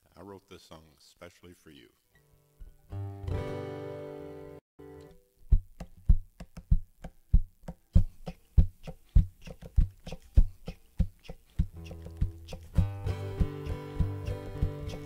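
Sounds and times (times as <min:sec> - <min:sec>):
hands thumping guitar body: 0:11.6 - 0:15.0.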